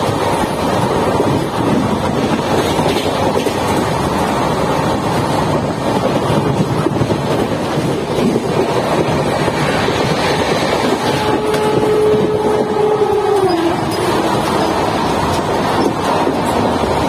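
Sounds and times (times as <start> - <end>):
train wheels on rails: 0.0 - 17.0
wind rushing: 0.0 - 17.0.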